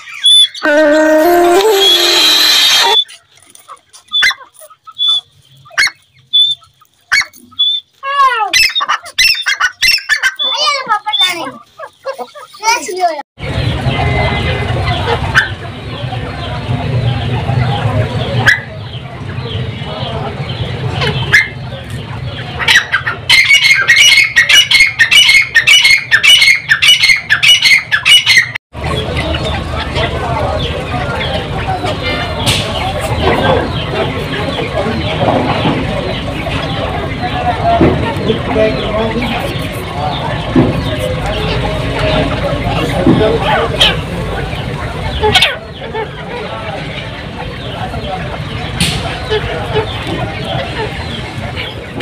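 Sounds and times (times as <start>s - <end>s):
bird calling rapid high notes: 0.4s - 3.1s
short high whistle: 0.6s - 3.0s.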